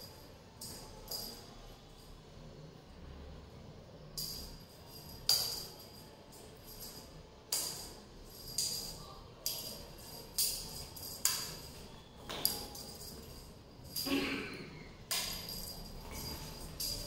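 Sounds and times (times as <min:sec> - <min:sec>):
small metal jingles: 0:04.2 - 0:14.2, 0:15.1 - 0:17.0.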